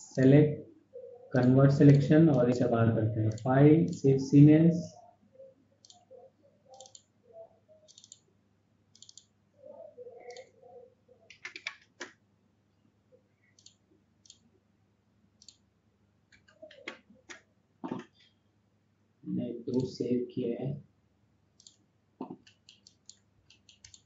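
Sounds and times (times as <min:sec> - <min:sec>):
mouse and keyboard clicks: 0:05.8 - 0:08.2, 0:09.0 - 0:09.3, 0:11.3 - 0:12.2, 0:13.6 - 0:14.4, 0:16.3 - 0:18.2, 0:21.6 - 0:24.0.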